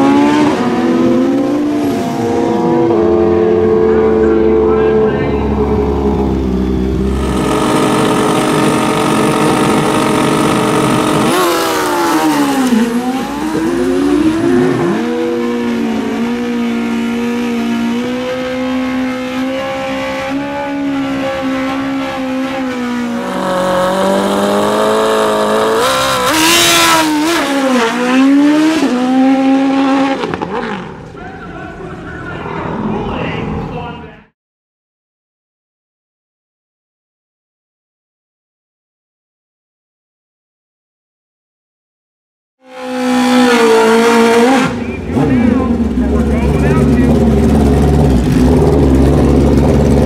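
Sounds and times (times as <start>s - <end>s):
motorcycle engines revving: 0.0s - 34.0s, 42.7s - 50.0s
tire spin noise: 4.7s - 15.2s, 43.0s - 50.0s.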